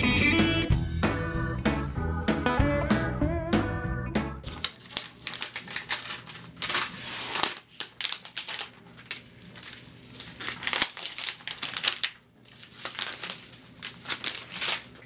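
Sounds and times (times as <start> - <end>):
plastic wrapping crinkling: 4.4 - 15.0.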